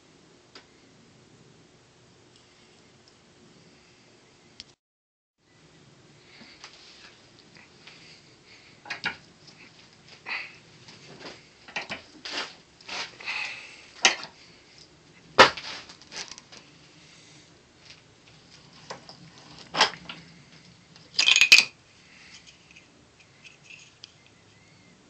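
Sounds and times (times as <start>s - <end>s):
plastic tube clattering: 18.7s - 20.2s, 21.1s - 21.7s.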